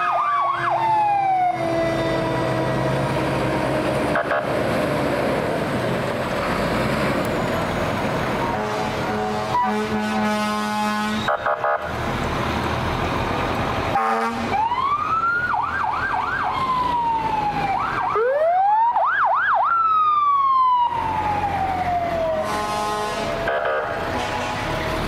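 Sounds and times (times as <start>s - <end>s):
fire truck siren wailing: 0.0s - 25.0s
truck engine rumble: 0.0s - 25.0s
truck horn note: 8.4s - 11.6s, 13.9s - 14.5s, 22.4s - 24.7s.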